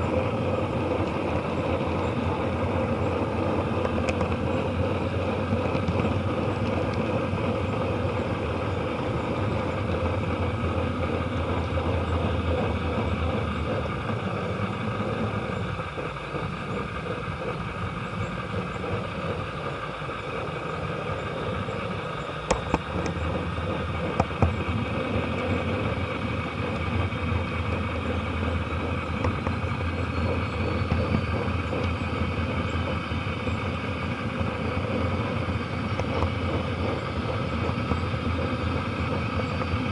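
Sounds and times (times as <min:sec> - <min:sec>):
model train rolling rumble: 0:00.0 - 0:39.9
sharp clicks: 0:21.7 - 0:24.8.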